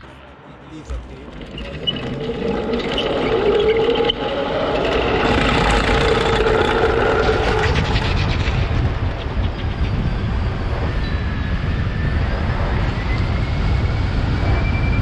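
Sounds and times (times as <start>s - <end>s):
steady drone: 0.0s - 15.0s
cable dragged scraping on concrete: 1.2s - 8.5s.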